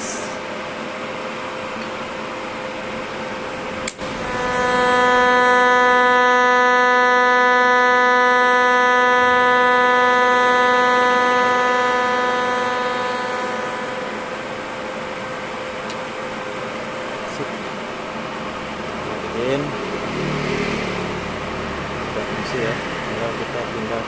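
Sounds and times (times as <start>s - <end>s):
welding arc humming: 0.0s - 0.4s, 1.9s - 24.0s.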